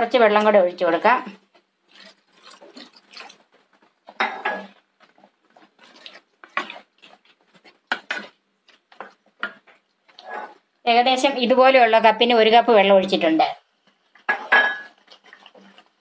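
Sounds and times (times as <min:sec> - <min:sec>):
wooden spatula scraping pan: 0:01.2 - 0:10.6, 0:14.0 - 0:16.0.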